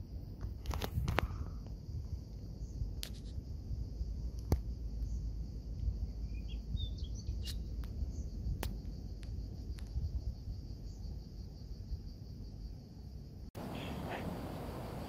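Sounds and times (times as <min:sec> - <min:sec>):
wind rumble on microphone: 0:00.0 - 0:12.6
crickets buzzing: 0:00.0 - 0:15.0
bird chirps: 0:06.2 - 0:08.3, 0:13.6 - 0:15.0.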